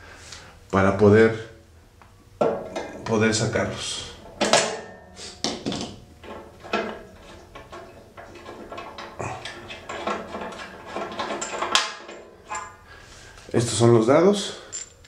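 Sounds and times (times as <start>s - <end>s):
metal clinks and knocks: 4.3s - 12.8s, 14.6s - 15.0s.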